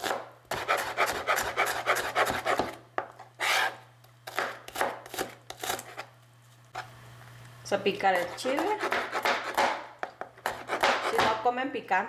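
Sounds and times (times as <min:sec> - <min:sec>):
knife chopping onion: 0:00.0 - 0:06.1, 0:08.0 - 0:11.4.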